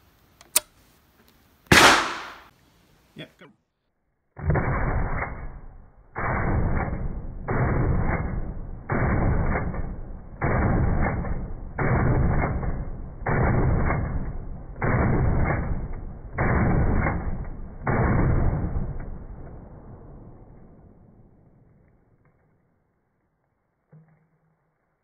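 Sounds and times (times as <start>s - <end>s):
gunshot echo: 1.7s - 2.5s, 4.4s - 21.6s
shotgun shots: 1.7s - 2.5s, 4.4s - 20.7s.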